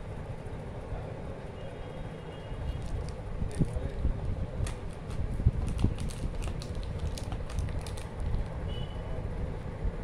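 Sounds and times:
wrappers crinkling: 0:05.0 - 0:08.5.

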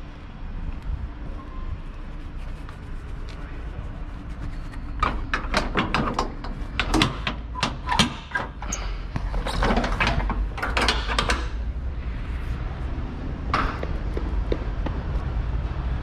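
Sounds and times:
low steady rumble: 0:00.0 - 0:16.0
metal clanks and knocks: 0:05.0 - 0:11.6.

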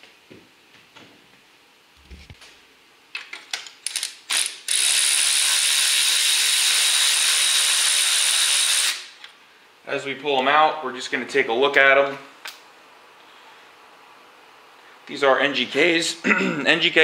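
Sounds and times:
electric ratchet motor running: 0:03.9 - 0:09.1.

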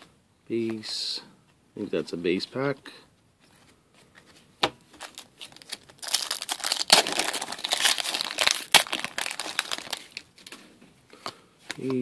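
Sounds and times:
foil wrapper crinkling and tearing: 0:05.0 - 0:10.6.

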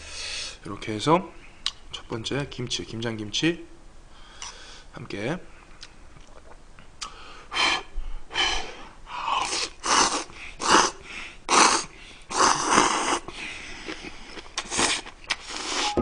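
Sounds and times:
man slurping noodles: 0:09.4 - 0:16.0.

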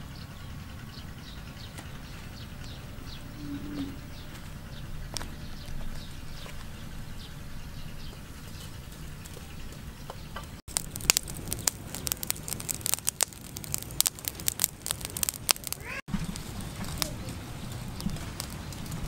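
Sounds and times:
low steady rumble: 0:00.0 - 0:15.5
charcoal fire crackling: 0:01.8 - 0:19.0.

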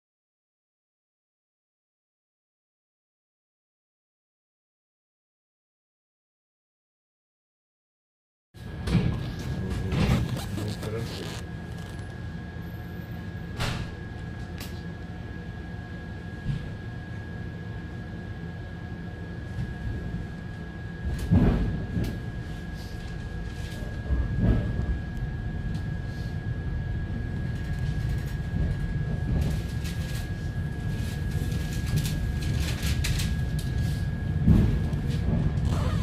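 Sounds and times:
train low rumble: 0:08.6 - 0:36.0.

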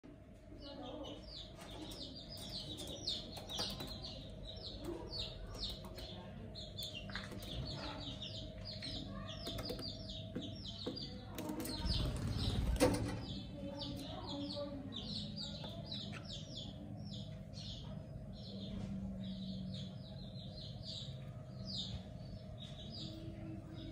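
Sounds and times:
budgerigars chirping: 0:00.8 - 0:23.8.

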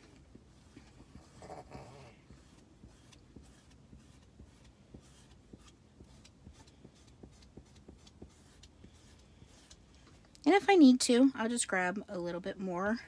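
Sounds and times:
squeegee ticking on chalkboard: 0:02.3 - 0:09.8.

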